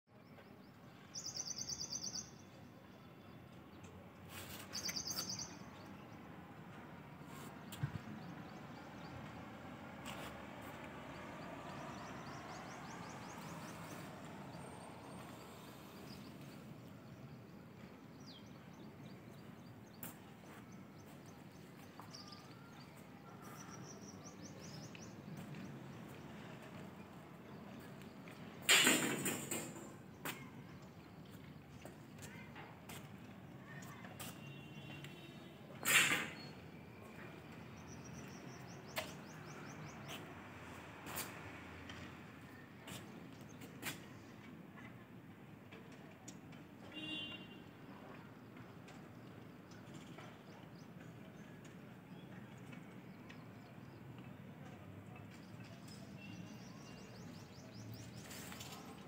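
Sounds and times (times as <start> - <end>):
faint outdoor background noise: 0.0 - 59.0
bird chirping: 0.1 - 3.9, 4.5 - 6.2.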